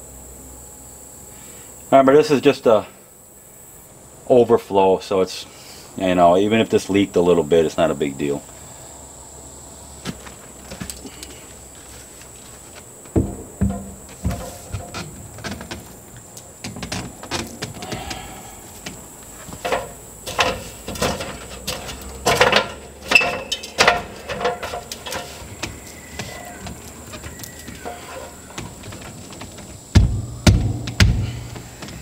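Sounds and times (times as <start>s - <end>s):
knocks and clanks on aluminum ladder: 13.1s - 16.0s, 16.6s - 18.2s, 18.8s - 32.0s.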